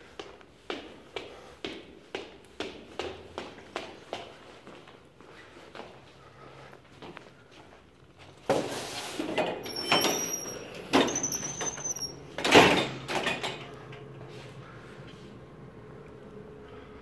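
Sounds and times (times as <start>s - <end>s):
door hinges squeaking: 9.5s - 12.9s
door opening clunk: 12.4s - 13.7s.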